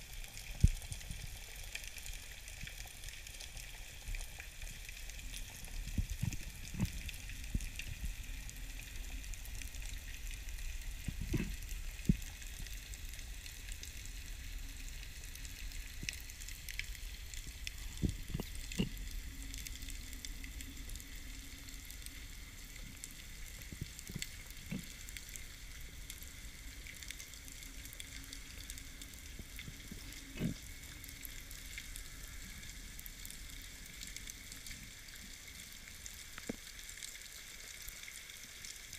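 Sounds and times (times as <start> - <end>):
underwater crackling hiss: 0.0 - 38.9.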